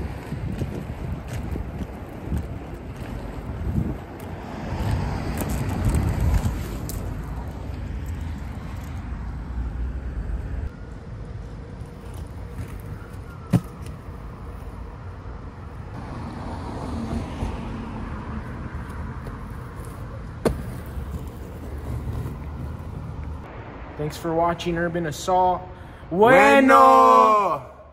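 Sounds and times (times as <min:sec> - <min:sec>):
skate wheels rolling on concrete: 0:00.0 - 0:23.5
skate landing clack: 0:20.4 - 0:22.4.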